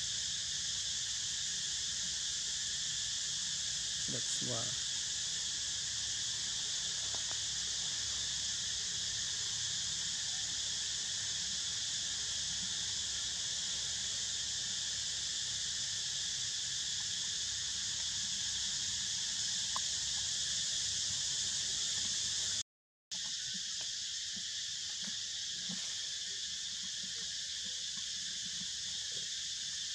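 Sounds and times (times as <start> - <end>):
high-pitched insect chorus: 0.0 - 29.9.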